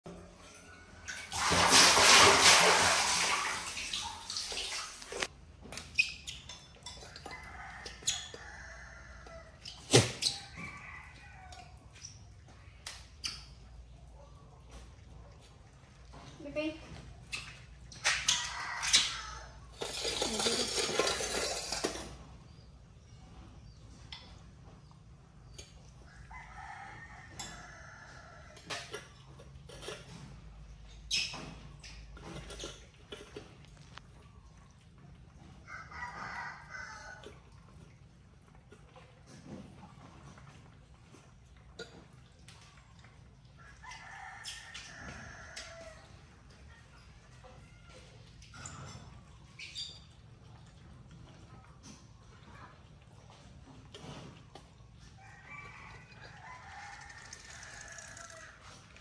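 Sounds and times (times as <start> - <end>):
water splashing in plastic basin: 0.9 - 6.0, 16.4 - 22.1
rooster crowing: 55.2 - 58.7.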